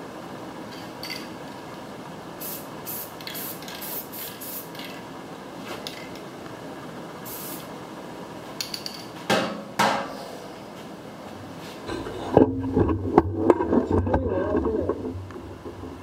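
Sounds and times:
spray-paint can hissing: 2.4s - 5.0s, 7.2s - 7.7s.

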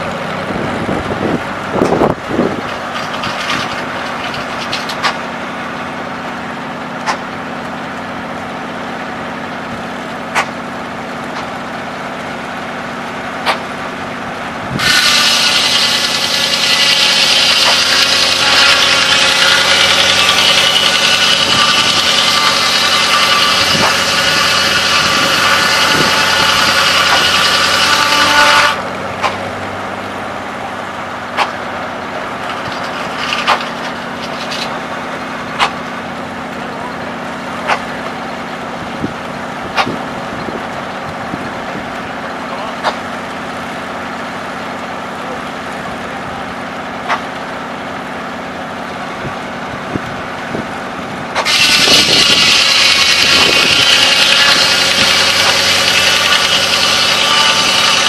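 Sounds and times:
sawmill engine running: 0.0s - 58.0s
saw blade screaming through log: 14.7s - 28.9s, 51.3s - 58.0s.

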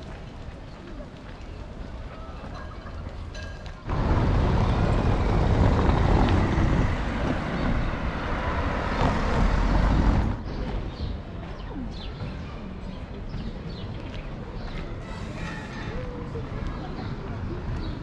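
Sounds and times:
car driving along the street: 3.8s - 10.9s.

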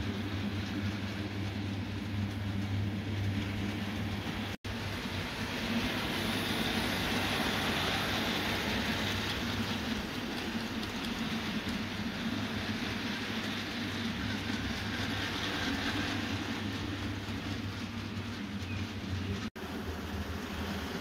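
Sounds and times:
low motor hum: 0.0s - 7.4s
model train wheels on rails: 0.0s - 21.0s.

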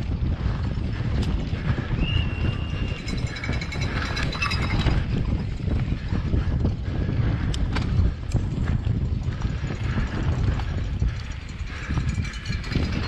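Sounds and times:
tyres on loose dirt: 0.0s - 6.4s
bike rattling: 0.0s - 13.0s
wind rumble on microphone: 0.0s - 13.0s.

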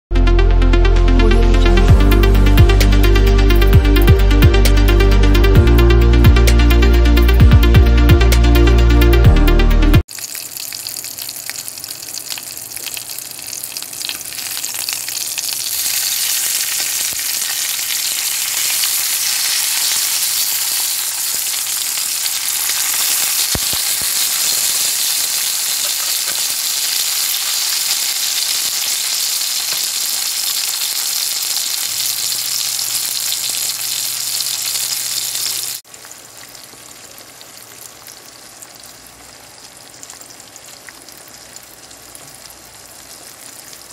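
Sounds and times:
eggs sizzling: 10.0s - 43.9s
meat patties sizzling in a pan: 10.1s - 43.9s.

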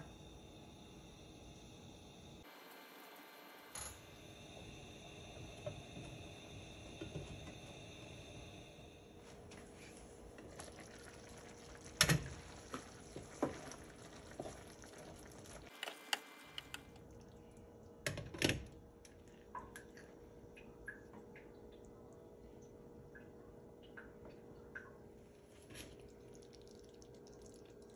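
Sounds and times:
sauce bubbling in skillet: 10.4s - 15.7s, 25.9s - 27.9s.

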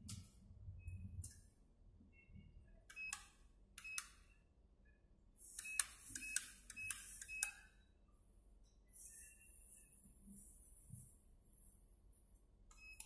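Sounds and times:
short electronic beeps: 5.6s - 7.7s.

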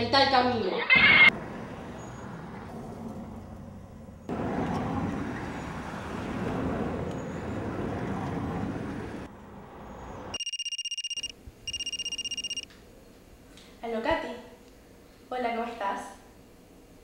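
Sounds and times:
street traffic from inside car: 1.2s - 10.4s.

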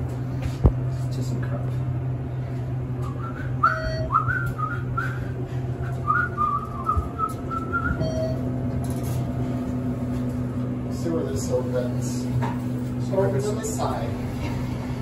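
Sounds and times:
elevator car humming: 0.0s - 15.0s
person whistling a tune: 3.0s - 8.4s
brief beeps: 7.7s - 8.4s.

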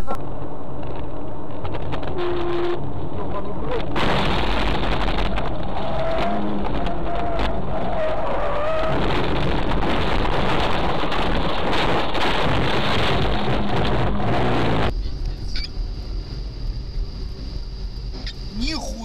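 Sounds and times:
car road noise and engine hum: 0.0s - 19.0s.

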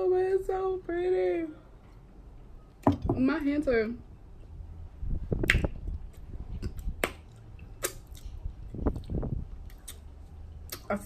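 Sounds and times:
wet lip smacks and chewing: 5.4s - 10.9s.

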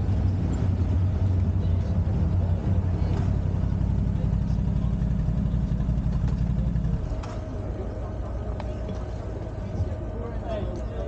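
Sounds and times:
quad bike engines idling: 0.0s - 11.0s.

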